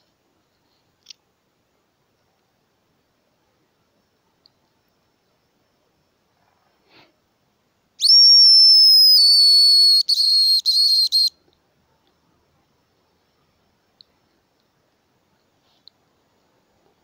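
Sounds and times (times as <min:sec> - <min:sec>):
high whistle of bird call: 0:08.0 - 0:11.4.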